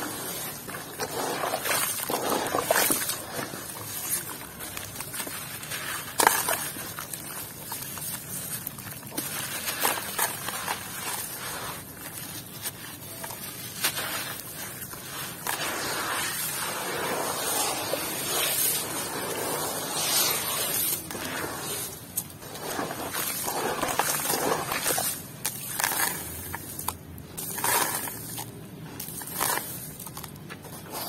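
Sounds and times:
hands crumbling wet block: 0.3s - 15.8s.

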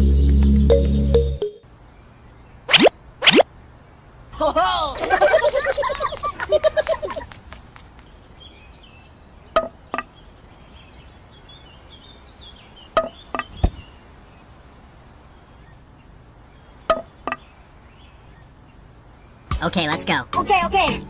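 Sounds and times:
bamboo sticks knocking: 16.9s - 17.4s.

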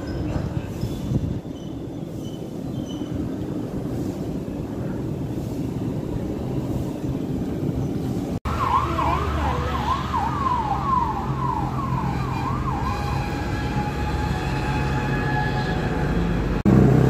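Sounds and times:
low traffic rumble: 0.0s - 17.0s
emergency vehicle siren: 8.4s - 16.6s.

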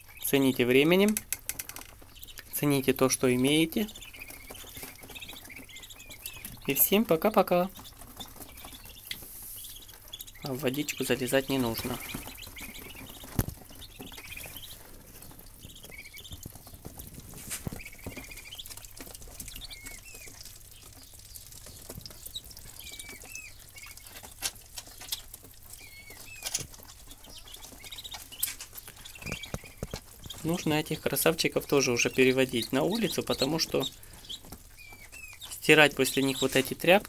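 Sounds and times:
ducklings peeping: 0.0s - 37.0s
sharp clicks and taps: 1.0s - 2.5s.

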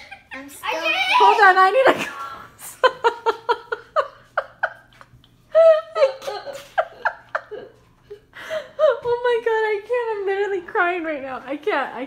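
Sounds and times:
children laughing: 0.0s - 8.3s.

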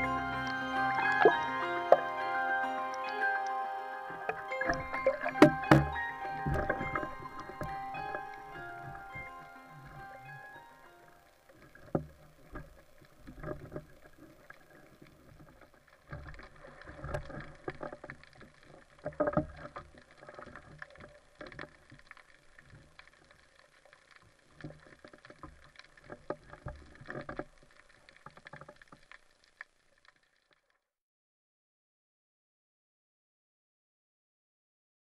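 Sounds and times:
water sloshing and gurgling: 0.0s - 30.7s
knocks and clicks: 4.3s - 10.0s.

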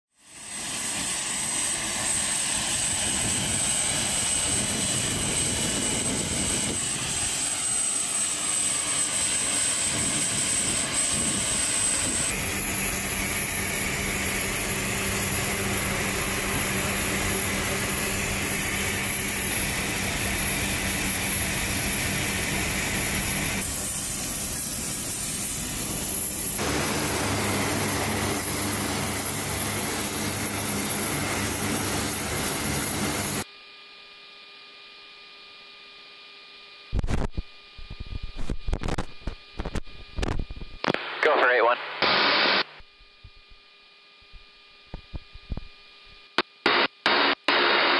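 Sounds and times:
turboprop engines roaring: 0.3s - 33.4s.

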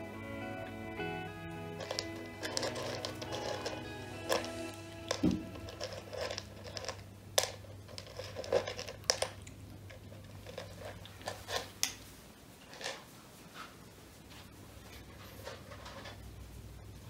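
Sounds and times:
faint low hum: 0.0s - 17.0s
kitten crunching dry food: 1.7s - 13.2s.

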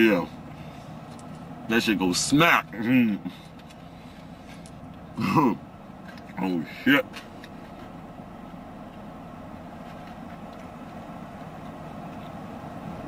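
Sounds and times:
car running noise inside cabin: 0.0s - 13.0s.

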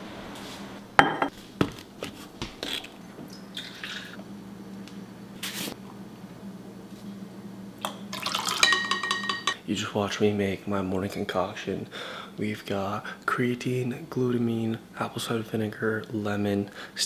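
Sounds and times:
metal spoon clinking glass: 8.5s - 9.6s
glass and bottles knocking: 8.6s - 9.6s.

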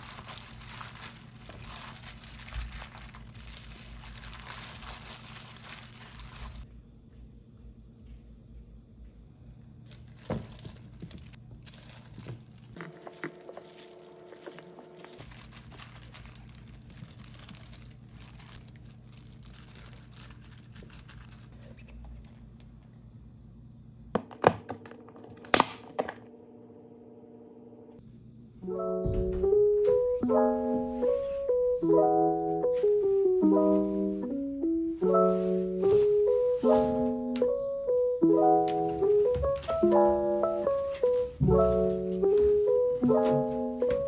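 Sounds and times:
piano background music: 0.0s - 6.7s, 12.6s - 21.0s, 28.6s - 44.0s
crinkling and light knocks: 0.1s - 6.7s, 9.9s - 22.2s, 38.6s - 44.0s.

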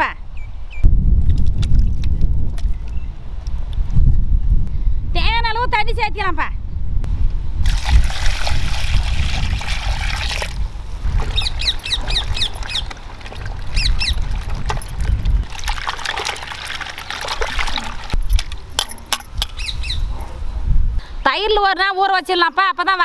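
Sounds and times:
water pouring and splashing: 7.6s - 18.9s
bird chirping: 11.2s - 13.0s, 13.7s - 14.3s, 19.5s - 20.3s.

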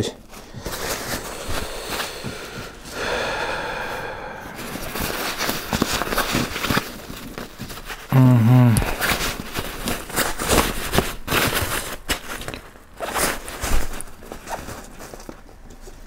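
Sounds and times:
nylon sack rustling and scraping: 4.6s - 8.1s, 8.8s - 15.6s.

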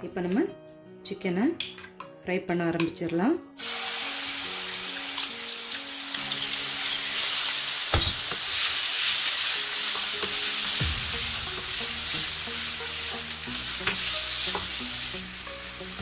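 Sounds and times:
chicken sizzling in hot oil: 3.6s - 16.0s.

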